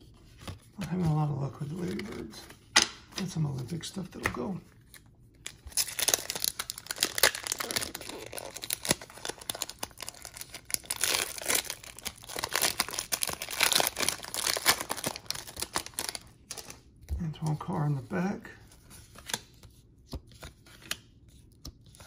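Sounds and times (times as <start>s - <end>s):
plastic crinkling and rustling: 5.4s - 16.8s.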